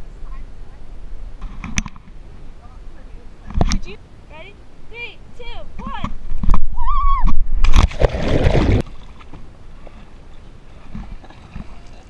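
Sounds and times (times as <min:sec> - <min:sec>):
faint water sounds: 0:00.0 - 0:12.0
loud splash: 0:07.5 - 0:09.2.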